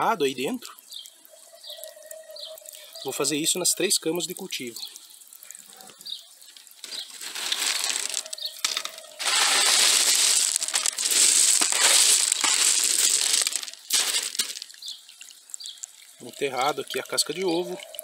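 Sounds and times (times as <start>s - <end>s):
clay pebbles crunching: 6.5s - 16.8s.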